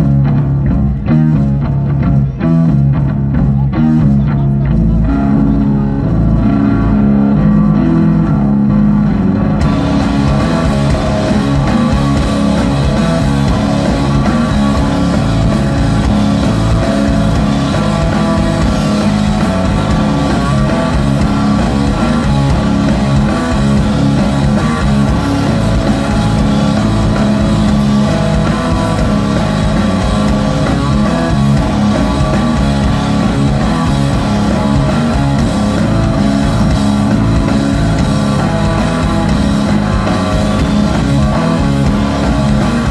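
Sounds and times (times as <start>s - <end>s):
bass guitar: 0.0s - 42.9s
drum kit: 0.0s - 42.9s
electric guitar: 0.0s - 42.9s.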